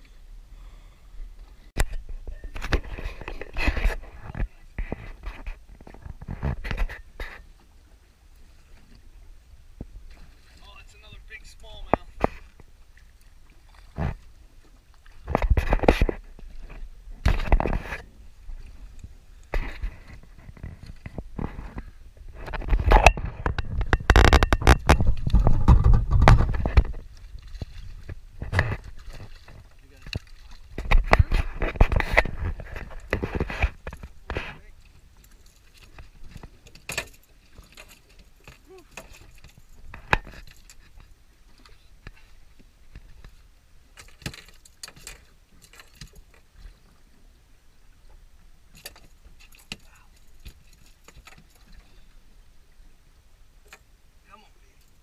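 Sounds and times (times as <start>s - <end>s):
rumble of wind and water: 0.0s - 55.0s
knocks and scrapes on boat: 1.4s - 7.7s, 9.8s - 12.7s, 13.6s - 47.0s, 48.8s - 52.2s.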